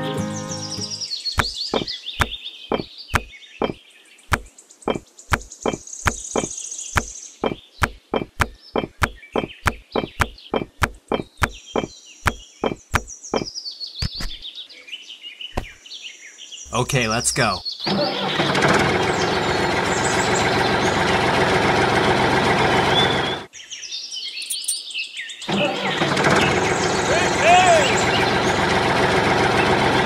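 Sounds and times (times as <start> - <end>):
birds chirping: 0.0 - 21.2, 22.9 - 28.7
clay bricks clacking: 1.4 - 14.4.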